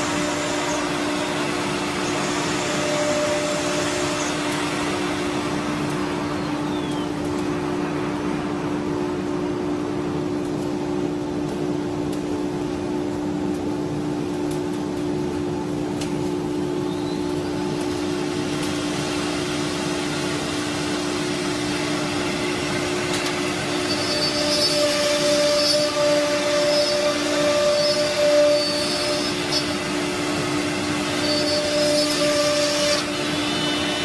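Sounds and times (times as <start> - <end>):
high-pitched spindle whine: 0.0 - 4.5, 23.6 - 29.9
cnc router machine hum: 0.0 - 7.2, 18.6 - 34.0.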